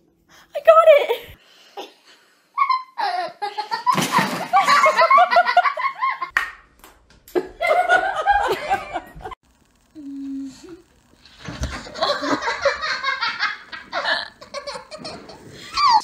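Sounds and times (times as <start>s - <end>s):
people laughing hard: 2.6s - 6.3s, 7.4s - 9.4s, 11.9s - 16.0s.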